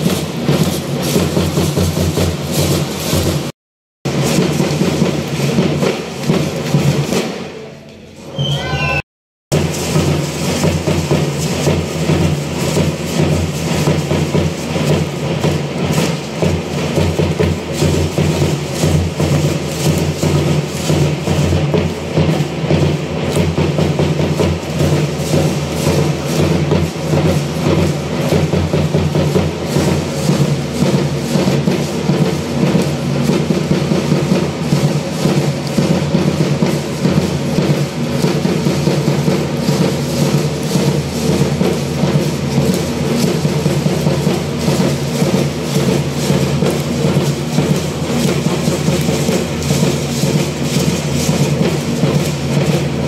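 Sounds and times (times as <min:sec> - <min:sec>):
pulsing drum beat: 0:00.0 - 0:07.6, 0:09.5 - 0:53.0
brisk percussion clatter: 0:00.0 - 0:07.8, 0:09.5 - 0:53.0.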